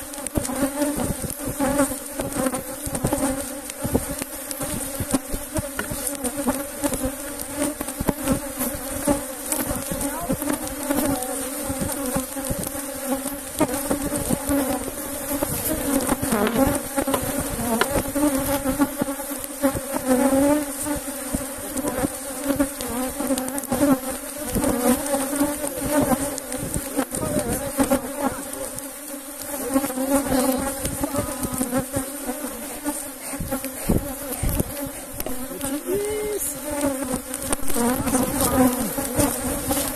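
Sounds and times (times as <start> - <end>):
bees buzzing: 0.0 - 39.9
single bees zipping past: 0.1 - 39.9.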